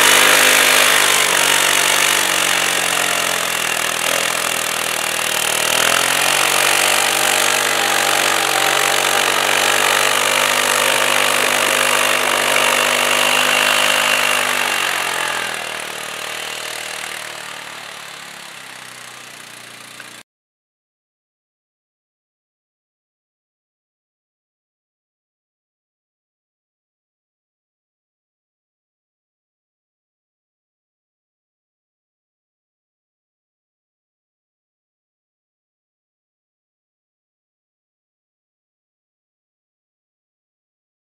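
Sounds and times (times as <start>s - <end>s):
quad engine under load: 0.0s - 20.2s.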